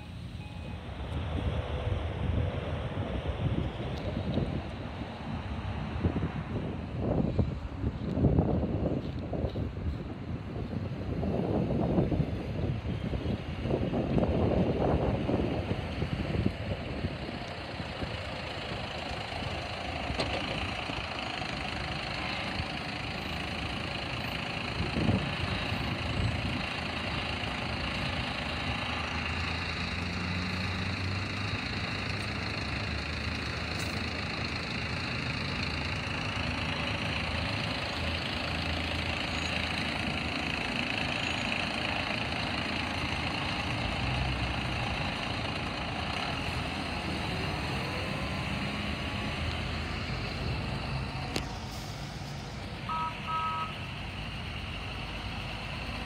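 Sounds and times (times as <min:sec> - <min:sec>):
garbage truck diesel engines: 0:00.0 - 0:56.0.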